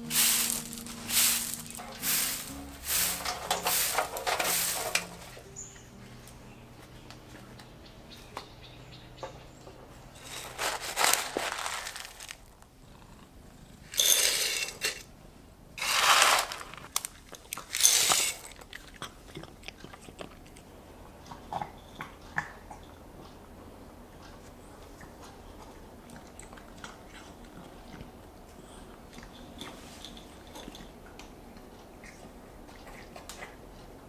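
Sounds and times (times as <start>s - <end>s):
kibble poured into bowls: 0.0s - 5.4s, 10.2s - 12.6s, 14.0s - 15.0s, 15.8s - 18.6s
cats crunching kibble: 10.2s - 15.0s, 15.8s - 23.5s, 24.2s - 34.0s.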